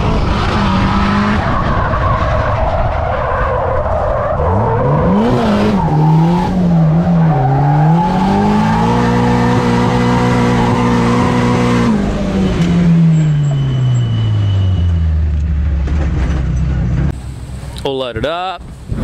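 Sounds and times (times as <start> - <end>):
car engine revving: 0.0 - 17.2
tyres skidding: 0.0 - 17.9.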